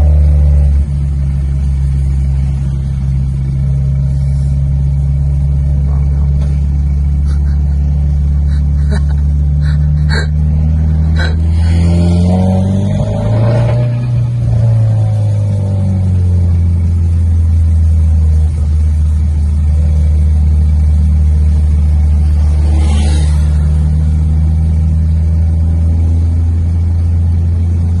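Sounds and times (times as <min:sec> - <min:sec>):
car engine and road noise: 0:00.0 - 0:28.0.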